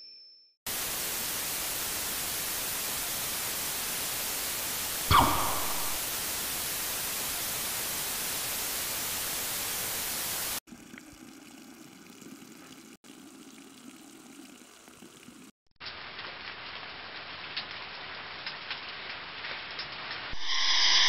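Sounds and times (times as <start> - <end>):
loud static hiss: 0.7 - 10.6, 20.4 - 21.0.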